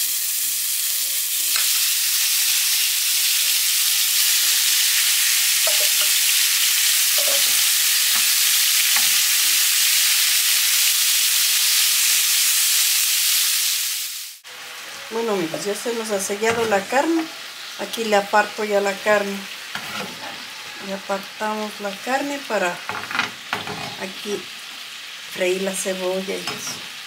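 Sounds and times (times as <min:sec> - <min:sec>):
meat sizzling in oil: 0:00.0 - 0:27.0
spoon stirring in pan: 0:05.6 - 0:06.4, 0:07.1 - 0:09.2.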